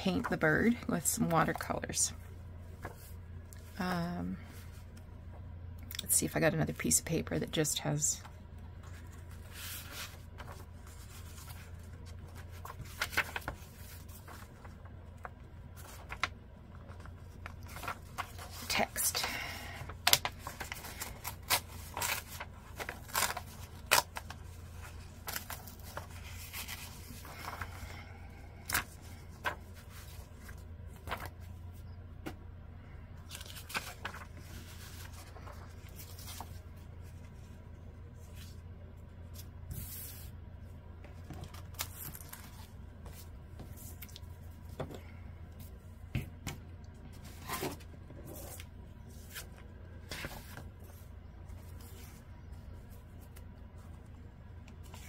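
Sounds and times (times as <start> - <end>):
low hum: 0.0 - 55.0
book pages rustling: 2.7 - 3.8, 8.7 - 19.3, 19.9 - 28.0, 28.6 - 32.4, 33.2 - 38.7, 41.0 - 45.0, 45.6 - 55.0.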